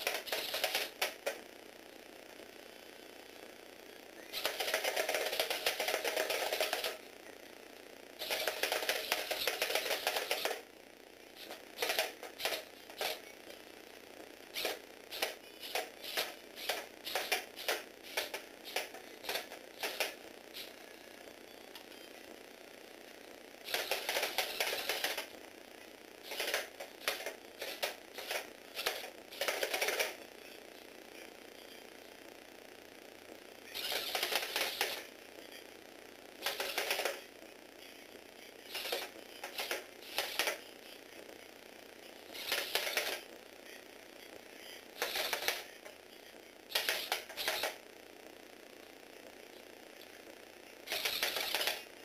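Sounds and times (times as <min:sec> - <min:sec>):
toy motor gear clicking clatter: 0:00.0 - 0:01.2, 0:04.3 - 0:07.0, 0:08.2 - 0:10.6, 0:11.4 - 0:13.2, 0:14.6 - 0:20.7, 0:23.6 - 0:25.3, 0:26.2 - 0:30.2, 0:33.7 - 0:35.1, 0:36.4 - 0:37.2, 0:38.7 - 0:40.6, 0:42.3 - 0:43.3, 0:45.0 - 0:45.8, 0:46.7 - 0:47.8, 0:50.8 - 0:51.9.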